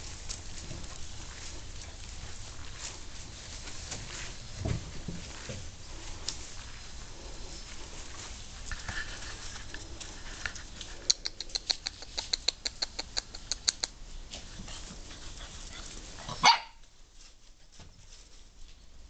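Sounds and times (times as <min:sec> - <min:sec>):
puppy yelp: 0:16.2 - 0:16.8.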